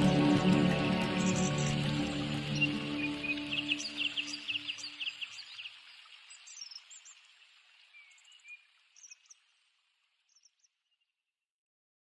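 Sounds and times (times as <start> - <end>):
music: 0.0 - 4.9
outdoor ambience hiss: 0.0 - 10.5.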